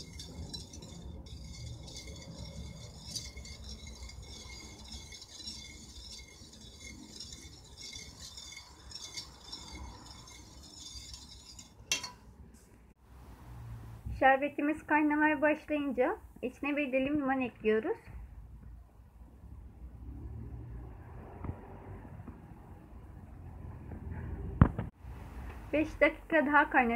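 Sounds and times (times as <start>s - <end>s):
wire whisk scraping metal pot: 0.0s - 12.4s.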